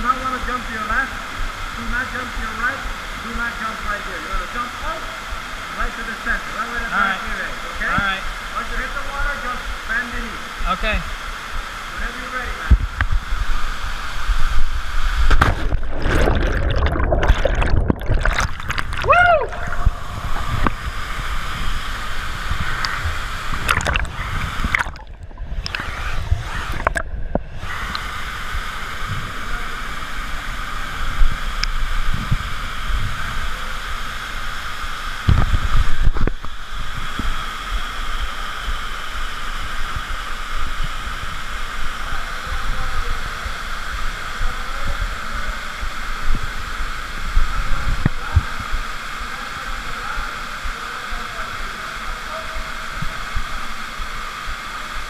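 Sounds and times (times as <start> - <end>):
underground waterfall rushing: 0.0 - 55.0
water gurgling and sloshing: 12.8 - 28.0
water splashing: 12.9 - 28.2.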